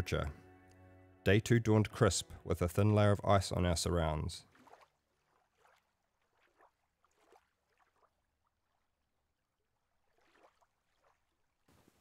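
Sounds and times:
faint ticks and trickles: 0:04.5 - 0:12.0.

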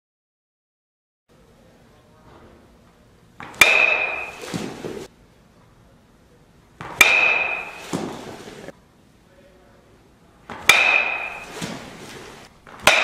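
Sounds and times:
ball landing in cage: 0:03.4 - 0:05.0, 0:06.8 - 0:08.3
metal bat hitting baseball: 0:03.4 - 0:05.1, 0:06.8 - 0:08.4, 0:10.5 - 0:12.0, 0:12.7 - 0:13.0.

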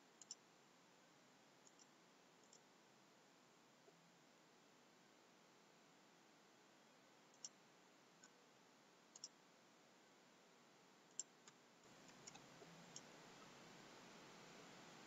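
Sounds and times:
computer mouse clicks: 0:00.2 - 0:00.4, 0:01.6 - 0:02.6, 0:07.3 - 0:07.6, 0:09.1 - 0:09.4, 0:11.1 - 0:13.6.

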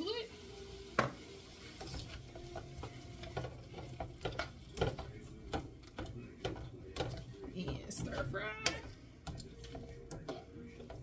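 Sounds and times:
vegetables sizzling in a skillet: 0:00.0 - 0:05.6
utensil scraping a pan: 0:01.7 - 0:11.0.

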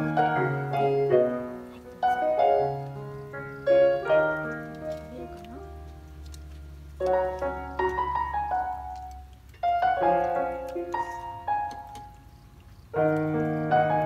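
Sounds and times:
piano music: 0:00.0 - 0:14.0.

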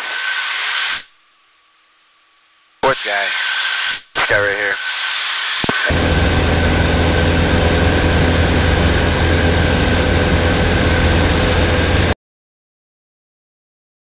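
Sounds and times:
aircraft engine and propeller droning: 0:05.9 - 0:12.2.

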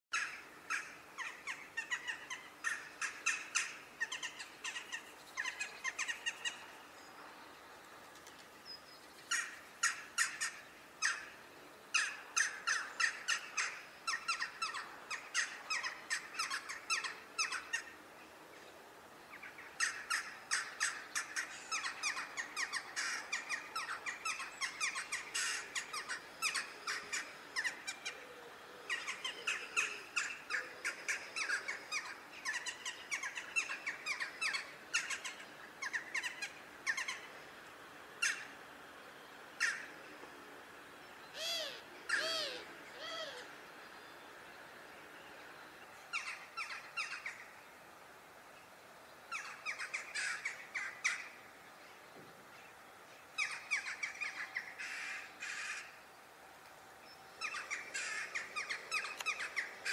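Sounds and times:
jackdaws calling: 0:00.1 - 0:06.8, 0:09.2 - 0:18.0, 0:19.3 - 0:37.4, 0:38.2 - 0:38.6, 0:39.5 - 0:40.1, 0:41.2 - 0:43.6, 0:46.1 - 0:47.6, 0:49.3 - 0:51.5, 0:52.5 - 0:56.1, 0:57.0 - 0:59.9.

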